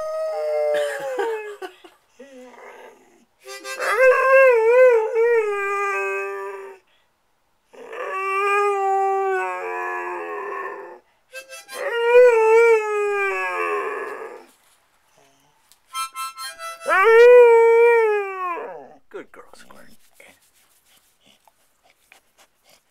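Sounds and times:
harmonica: 3.4 - 4.3, 11.3 - 12.3, 15.9 - 17.4
dog howling: 7.8 - 11.0, 11.8 - 14.5, 16.8 - 19.0.

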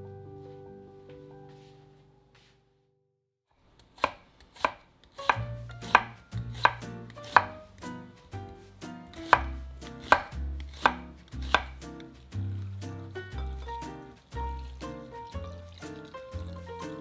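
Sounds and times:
knife slicing on wooden cutting board: 4.0 - 7.8, 8.6 - 12.9
low music notes: 5.5 - 17.0.

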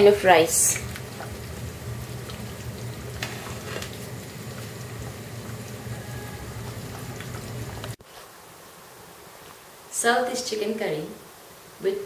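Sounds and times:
curry bubbling in a pan: 0.8 - 8.0
low hum: 0.8 - 8.0.

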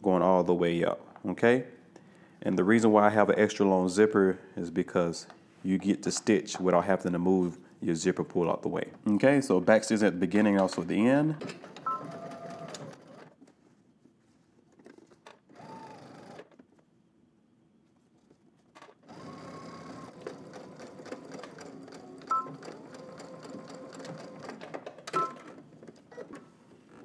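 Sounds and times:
sewing machine stitching: 11.4 - 13.4, 14.8 - 16.6, 18.8 - 27.0.

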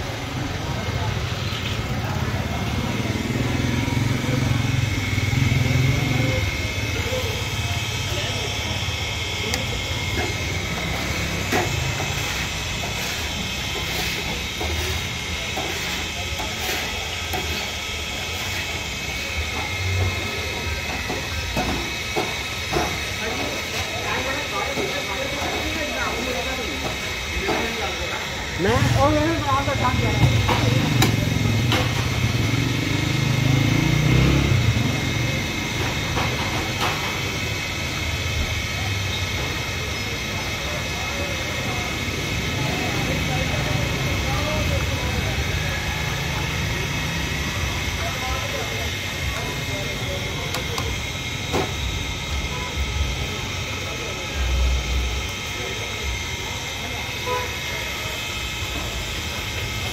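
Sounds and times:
motor vehicle engine running: 0.0 - 16.5, 28.6 - 38.5
chicken deep-frying in oil: 7.9 - 19.6, 45.5 - 47.9.

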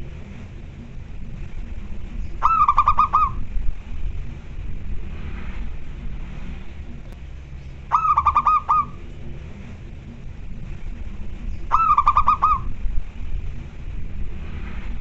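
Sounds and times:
dove cooing: 2.3 - 3.5, 7.9 - 9.1, 11.6 - 12.8.

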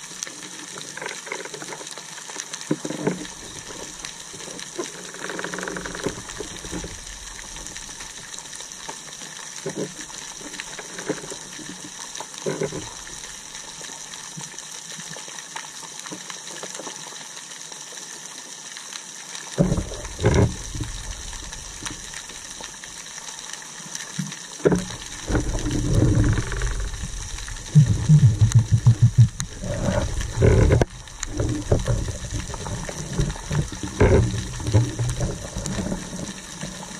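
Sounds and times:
water rumbling against housing: 19.6 - 22.6, 24.7 - 36.9
quick low pulses: 27.7 - 29.5.

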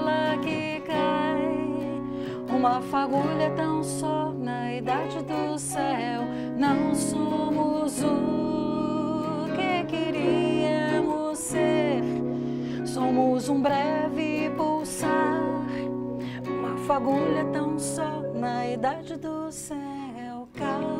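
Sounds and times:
acoustic guitar: 0.0 - 20.9
electric guitar: 0.0 - 20.9
woman singing: 0.0 - 20.9.

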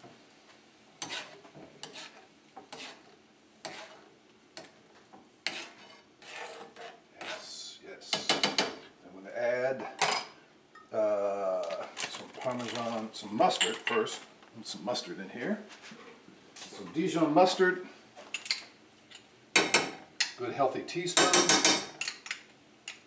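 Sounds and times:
utensil scraping a skillet: 1.0 - 9.0.

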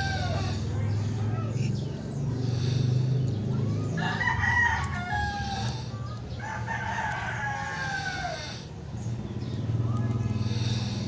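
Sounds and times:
rooster crowing: 0.0 - 1.5, 3.7 - 5.8, 6.4 - 8.6.

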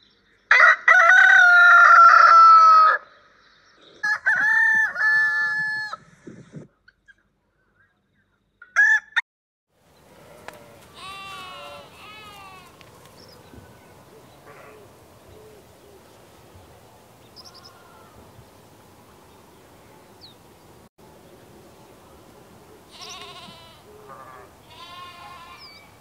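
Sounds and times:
sheep bleating: 10.3 - 12.8, 22.9 - 25.9.

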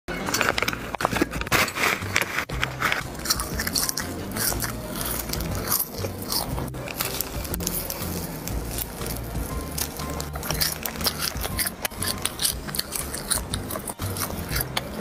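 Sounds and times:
crunchy snack chewing: 1.9 - 15.0.

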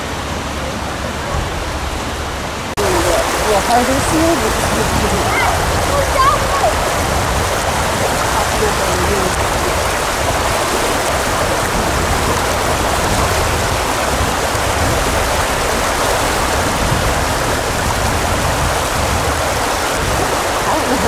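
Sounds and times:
water rushing: 0.0 - 21.0.

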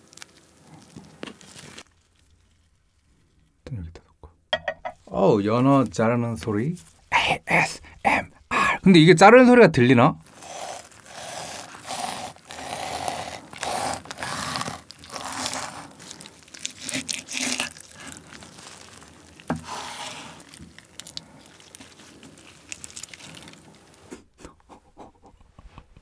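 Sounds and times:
faint handling sounds: 0.0 - 3.6, 10.2 - 24.2
knife slicing fish: 10.4 - 20.8.

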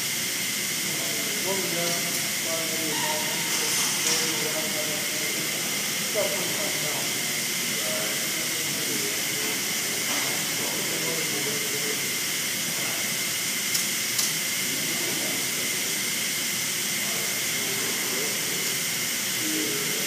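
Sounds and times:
faint voices: 0.8 - 13.2, 17.0 - 20.0.

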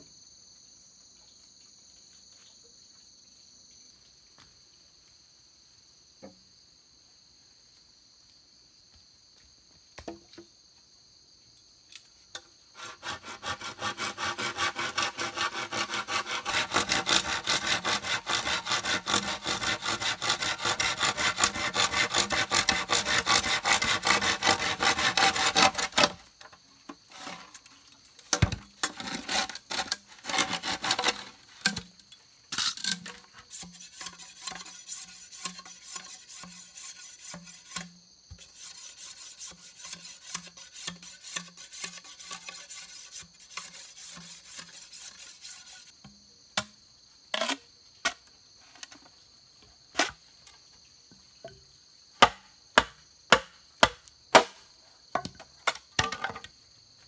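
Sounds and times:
saw rasping through bamboo: 12.7 - 26.3, 27.1 - 27.7, 28.4 - 31.9, 32.5 - 45.9.

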